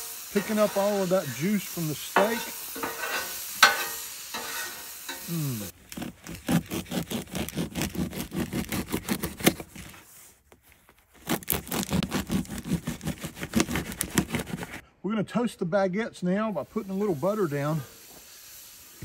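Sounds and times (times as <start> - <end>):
knife sawing through bread: 5.4 - 10.0, 11.2 - 14.8.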